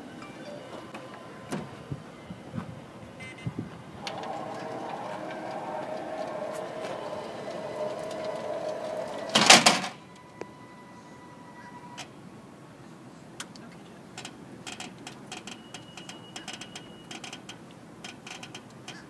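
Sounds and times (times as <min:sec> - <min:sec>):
ramp motor whine: 0:00.9 - 0:12.0
ramp clattering onto pavement: 0:04.0 - 0:10.0.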